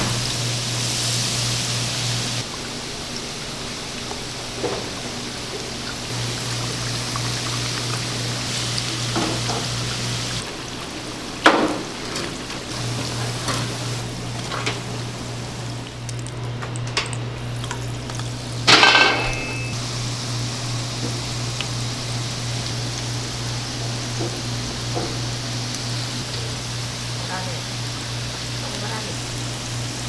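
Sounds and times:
food sizzling in hot oil: 0.0 - 16.0, 17.4 - 30.0
metal utensils knocking on fryer: 11.4 - 12.3.

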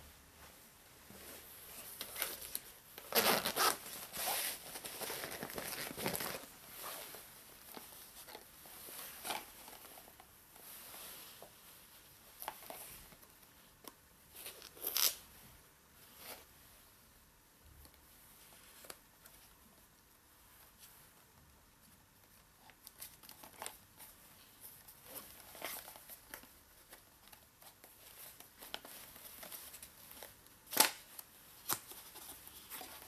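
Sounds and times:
synthetic jacket rustling: 0.4 - 7.4.

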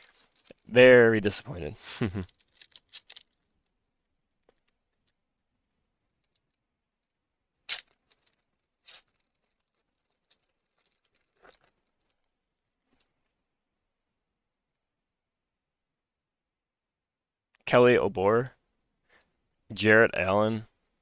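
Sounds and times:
wrapper rustling and crinkling: 0.0 - 0.7, 2.0 - 3.4, 7.7 - 12.2
wrapper ripping: 7.7 - 11.9.

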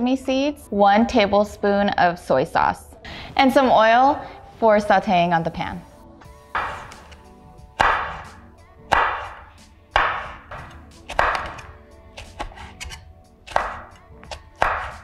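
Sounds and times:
knife slicing on wooden board: 6.6 - 7.2, 7.8 - 15.0.

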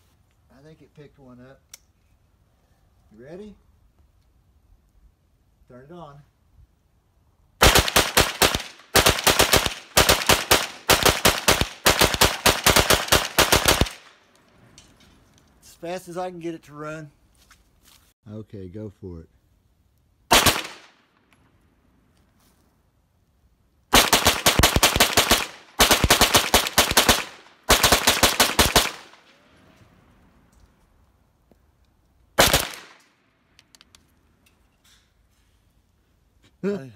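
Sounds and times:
rapid gunshots: 7.6 - 14.1, 20.3 - 20.9, 23.9 - 29.2, 32.4 - 32.9
rifle rapid gunfire: 7.6 - 14.1, 20.3 - 20.9, 23.9 - 29.2, 32.4 - 32.9.

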